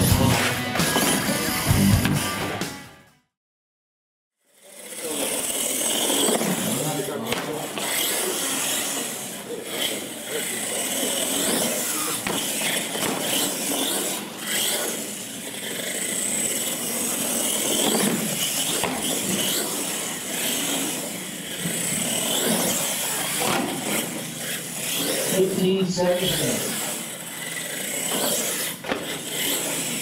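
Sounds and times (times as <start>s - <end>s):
electric motor whining and revving: 0.0s - 2.6s, 4.4s - 30.0s
tyres scrubbing on concrete: 26.2s - 30.0s.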